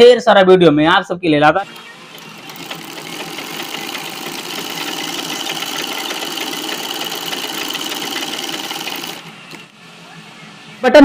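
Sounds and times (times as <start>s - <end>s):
sewing machine stitching: 1.6s - 9.7s.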